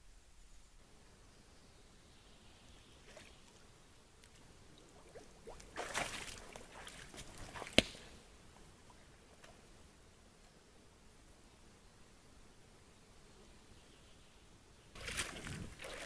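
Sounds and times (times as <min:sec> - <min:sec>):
water sloshing and splashing: 0:04.9 - 0:08.0, 0:15.0 - 0:16.0.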